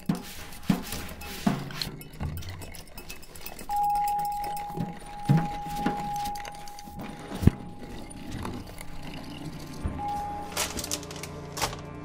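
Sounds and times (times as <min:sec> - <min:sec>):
ringing chime: 0:03.4 - 0:09.4, 0:10.0 - 0:11.0.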